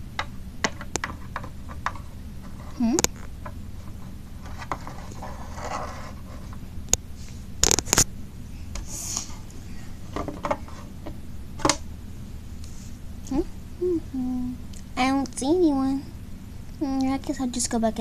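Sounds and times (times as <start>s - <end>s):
plastic toys rustling and scraping: 1.0s - 2.9s, 3.7s - 8.0s.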